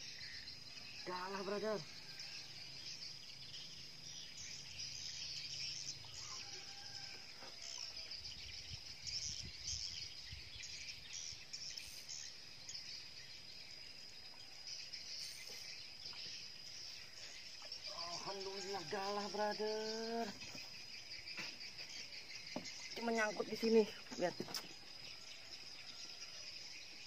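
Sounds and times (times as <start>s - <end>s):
birds chirping: 0.0s - 27.0s
insects droning: 0.0s - 27.0s.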